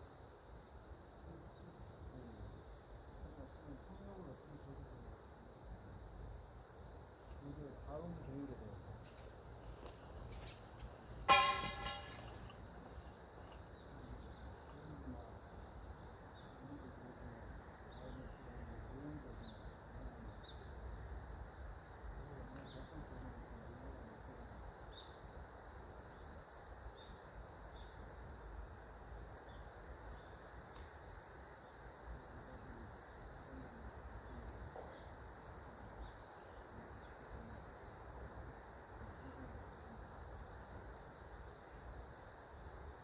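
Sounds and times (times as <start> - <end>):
high-pitched insect chirping: 0.0 - 43.0.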